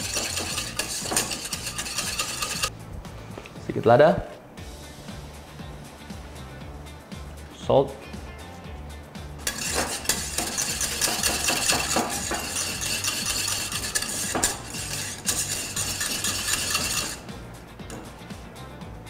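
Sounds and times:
whisk scraping a saucepan: 0:00.0 - 0:02.7, 0:09.4 - 0:17.3.

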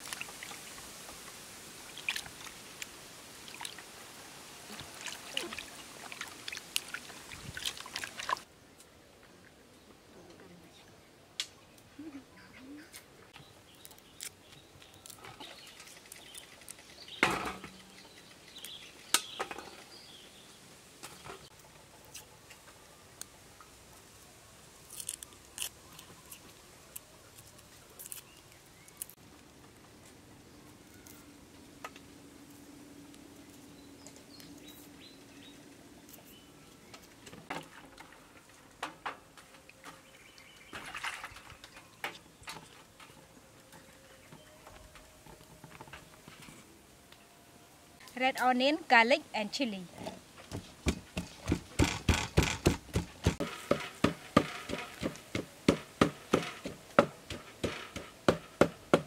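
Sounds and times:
sharp knocks: 0:50.5 - 0:59.0.

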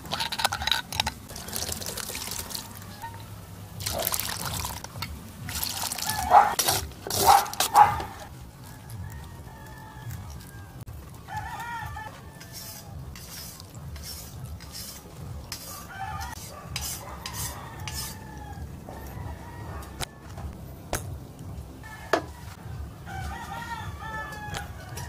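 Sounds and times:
scraping and clinking in metal pot: 0:00.0 - 0:08.3, 0:12.4 - 0:18.2
rooster crowing: 0:01.3 - 0:04.0, 0:06.0 - 0:06.6, 0:07.2 - 0:13.1, 0:15.6 - 0:20.6, 0:21.8 - 0:25.0.

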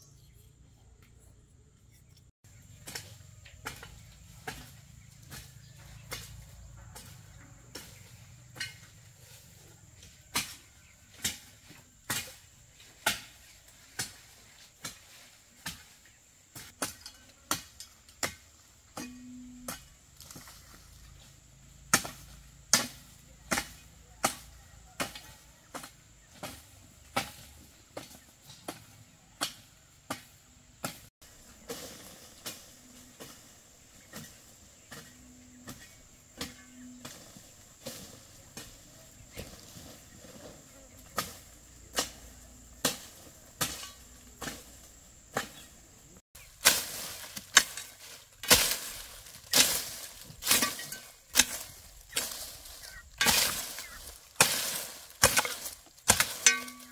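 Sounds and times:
bladed hand tool chopping: 0:46.6 - 0:52.5, 0:53.2 - 0:56.9.

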